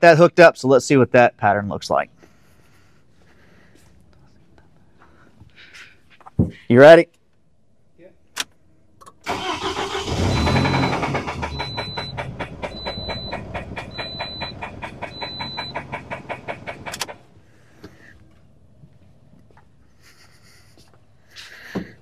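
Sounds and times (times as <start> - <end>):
car engine starting and running: 9.1 - 17.3.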